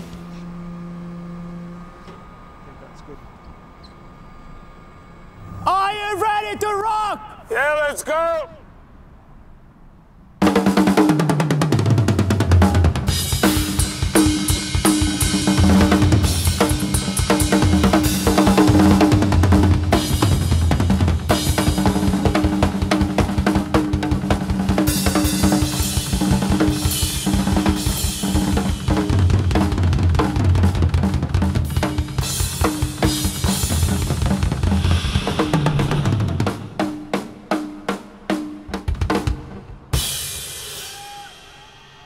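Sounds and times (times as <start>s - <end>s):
rock drum solo: 10.4s - 42.0s.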